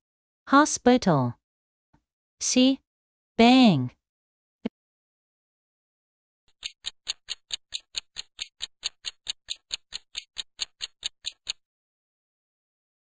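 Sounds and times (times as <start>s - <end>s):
clock ticking quickly: 6.5s - 11.6s.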